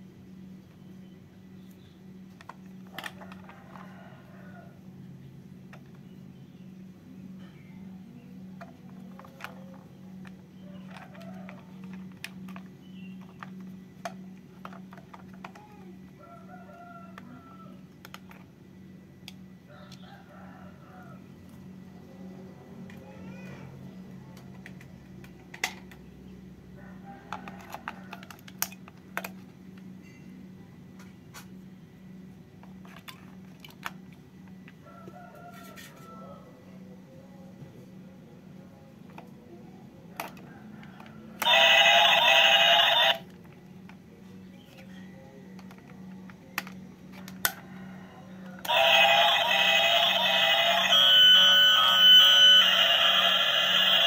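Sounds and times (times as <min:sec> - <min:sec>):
toy train electronic tune: 0:41.4 - 0:43.3, 0:48.6 - 0:54.0.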